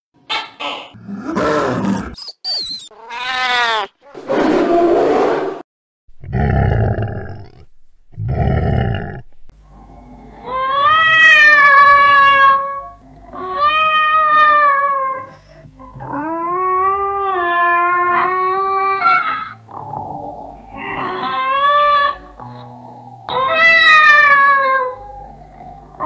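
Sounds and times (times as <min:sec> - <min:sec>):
cat meowing: 0:02.9 - 0:03.9, 0:10.4 - 0:15.3, 0:23.3 - 0:25.0
cat yowling: 0:02.9 - 0:04.0, 0:10.4 - 0:15.3, 0:16.0 - 0:19.6, 0:20.8 - 0:22.4, 0:23.3 - 0:25.3
cat growling: 0:06.2 - 0:26.0.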